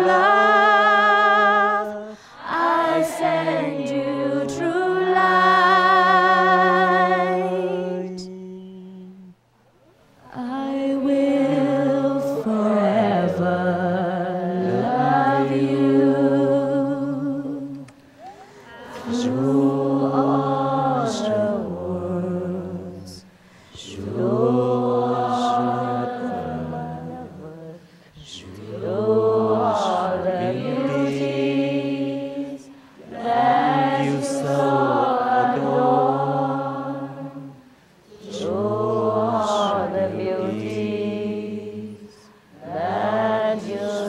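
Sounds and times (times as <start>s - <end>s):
woman singing unaccompanied: 0.0s - 9.4s, 10.2s - 18.0s, 37.3s - 44.0s
voices softly singing along: 0.0s - 44.0s.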